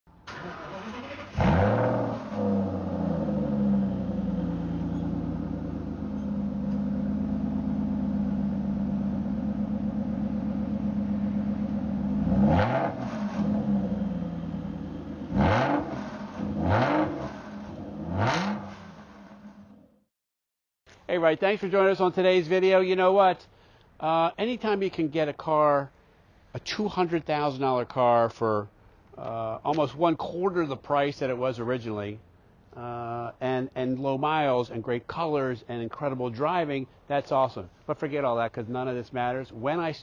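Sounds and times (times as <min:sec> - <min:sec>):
car engine starting and idling: 0:00.2 - 0:19.9
engine revving: 0:00.3 - 0:19.8.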